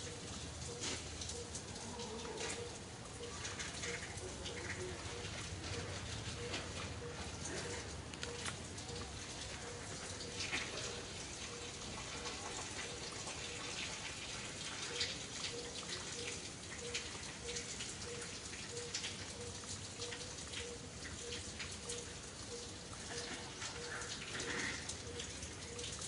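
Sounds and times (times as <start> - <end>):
outdoor ambient hiss: 0.0 - 26.0
small irregular ticks: 0.6 - 26.0.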